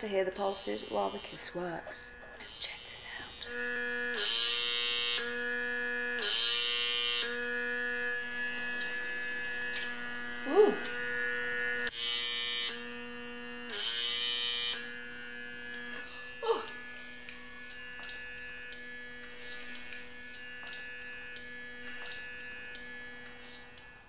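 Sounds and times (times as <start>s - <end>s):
suction pump humming: 0.0s - 24.0s
short vocal sound: 10.4s - 10.9s, 16.0s - 16.8s.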